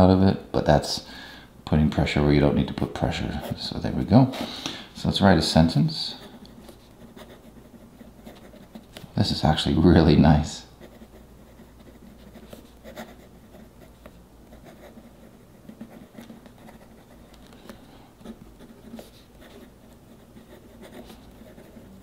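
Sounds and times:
pen nib scratching on paper: 6.1 - 9.0, 10.8 - 22.0.

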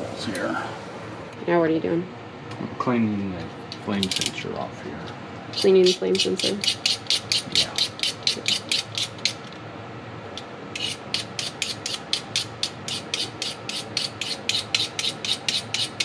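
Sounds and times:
scraping metal rod: 10.8 - 16.0.

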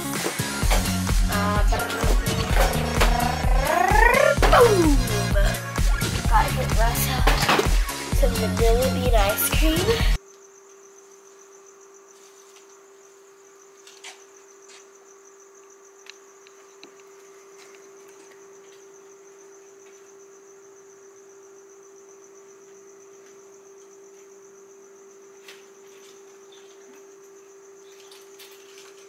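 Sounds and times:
crickets chirping: 0.0 - 29.0
steady low hum: 0.6 - 10.3.

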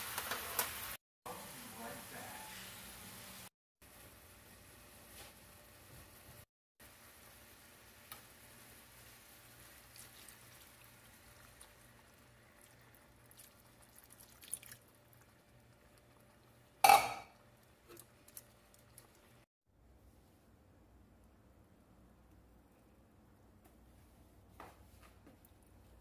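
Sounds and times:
faint liquid sounds in a skillet: 0.0 - 19.5
small drips and ticks: 9.8 - 16.6, 17.6 - 19.4.

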